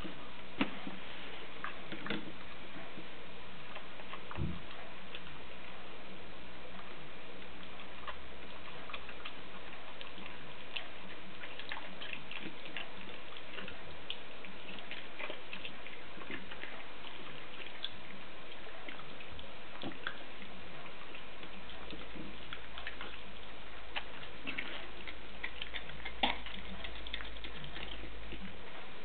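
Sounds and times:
background hiss: 0.0s - 29.0s
dog licking pup: 6.7s - 29.0s.

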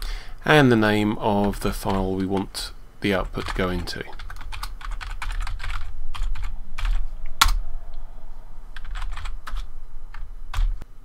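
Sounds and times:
typing on computer keyboard: 4.2s - 7.0s, 8.8s - 10.8s.

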